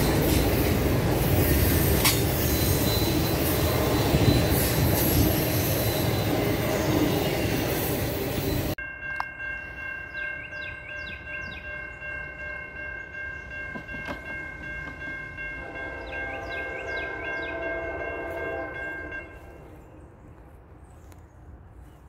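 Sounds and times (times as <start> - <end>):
locomotive air horn chord: 15.4 - 19.9.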